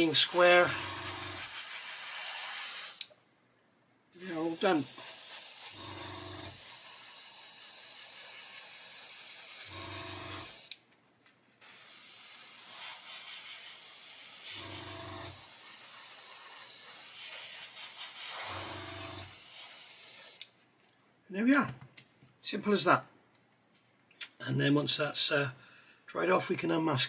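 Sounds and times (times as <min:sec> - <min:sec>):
airbrush spraying hiss: 0:00.0 - 0:03.1, 0:04.2 - 0:10.8, 0:11.6 - 0:20.4.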